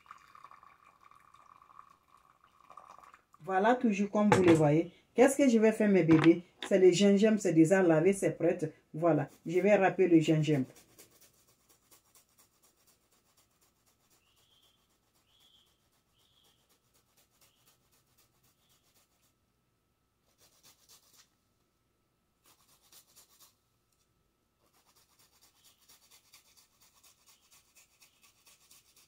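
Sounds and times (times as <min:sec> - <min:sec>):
ginger rasping on metal grater: 0:24.7 - 0:29.0.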